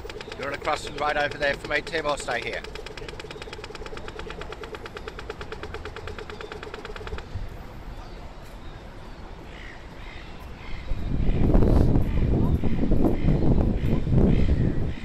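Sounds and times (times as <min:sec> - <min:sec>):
pedestrian crossing signal ticking: 0:00.0 - 0:07.3
low city traffic: 0:00.0 - 0:15.0.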